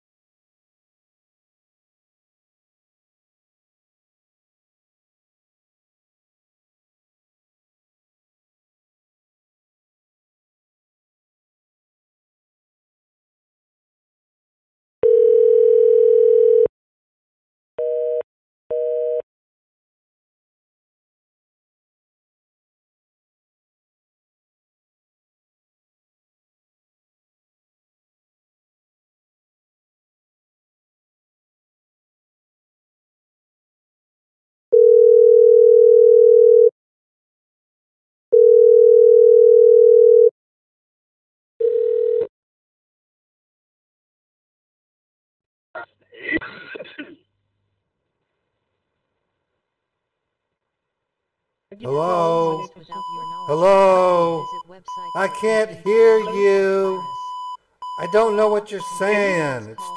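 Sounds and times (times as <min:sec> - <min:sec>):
telephone ringing tone: 0:15.0 - 0:16.7, 0:34.7 - 0:36.7, 0:38.3 - 0:40.3, 0:41.6 - 0:42.3
busy signal beeps: 0:51.9 - 0:59.9.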